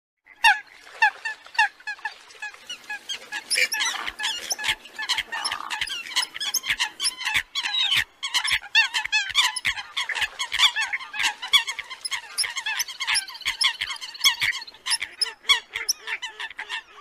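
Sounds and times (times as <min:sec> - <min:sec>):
coot calls: 0:03.3 - 0:09.8.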